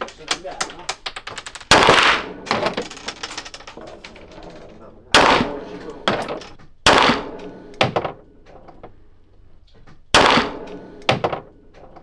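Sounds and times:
pistol shots with echo: 5.1 - 5.7, 6.8 - 7.5, 10.1 - 10.9.

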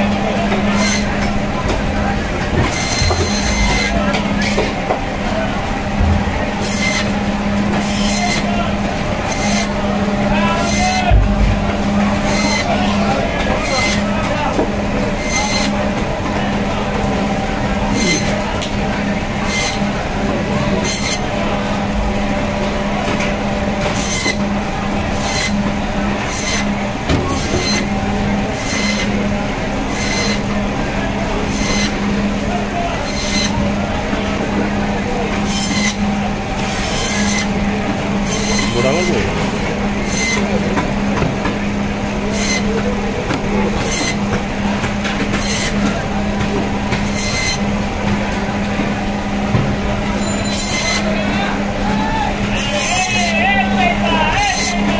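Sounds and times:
band saw humming: 0.0 - 54.9
saw blade rasping through fish: 0.7 - 1.2, 2.6 - 3.9, 6.6 - 7.1, 7.8 - 8.5, 9.2 - 9.7, 12.2 - 12.7, 15.1 - 15.8, 17.9 - 18.4, 26.2 - 26.7, 27.3 - 29.2, 29.9 - 30.4, 31.5 - 32.0, 33.0 - 33.6, 35.4 - 36.0, 36.6 - 37.5, 38.2 - 39.1, 42.3 - 42.8, 43.8 - 44.3, 45.3 - 45.9, 46.9 - 47.7, 50.1 - 51.1, 54.3 - 54.9.

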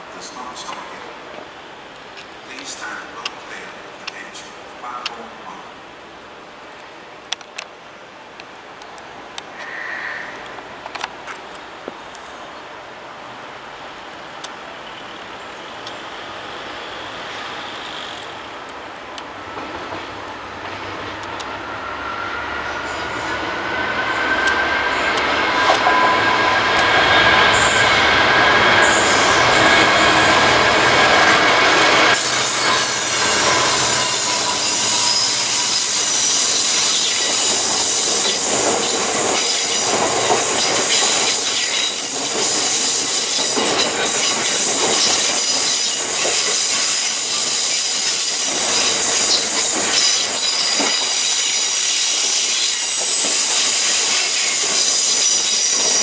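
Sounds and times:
diesel locomotive passing: 8.0 - 56.0
wheels clattering over rail joints: 32.2 - 51.6
wheel squeals: 32.2 - 56.0.

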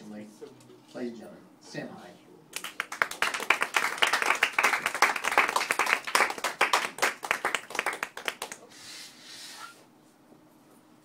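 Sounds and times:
small audience clapping: 2.5 - 8.7.

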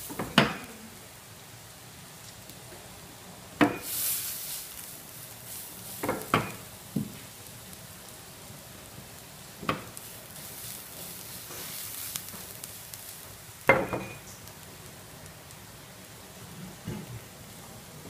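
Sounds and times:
food sizzling in frying pan: 0.0 - 18.0
pan clanking on burner: 0.1 - 0.7, 3.6 - 4.0, 6.0 - 6.7, 13.7 - 14.3.

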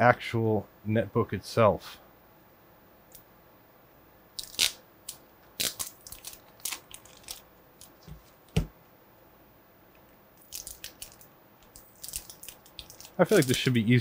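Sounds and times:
plastic wrapping crinkling: 4.4 - 8.2, 10.4 - 13.9
dull thumps: 8.0 - 8.8.

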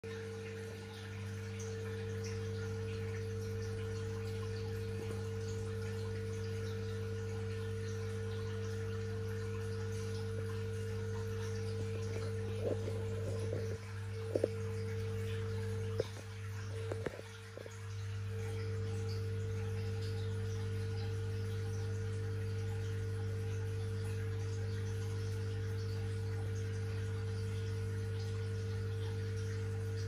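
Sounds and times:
aquarium pump humming: 0.0 - 30.0
water trickling: 0.0 - 30.0.

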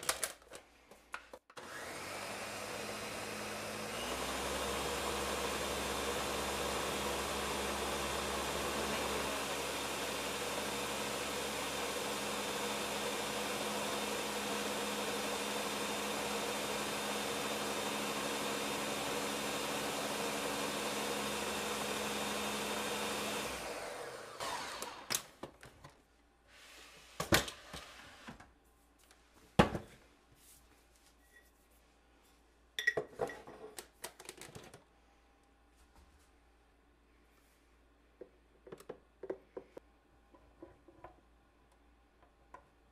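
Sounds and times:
blender running: 1.6 - 25.3.

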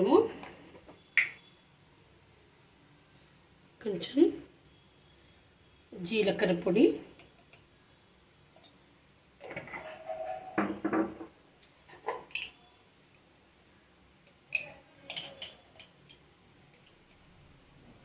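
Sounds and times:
steel kitchen utensils clinking: 7.2 - 7.6, 9.4 - 11.2, 11.9 - 12.7, 14.5 - 16.9.

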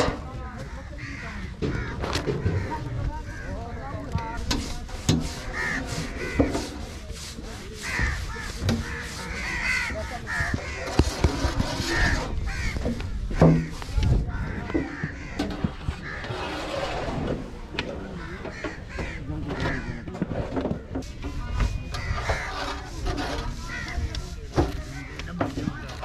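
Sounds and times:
crows cawing: 0.5 - 4.4, 5.5 - 6.5, 7.8 - 16.4, 18.1 - 20.4, 22.0 - 24.2.

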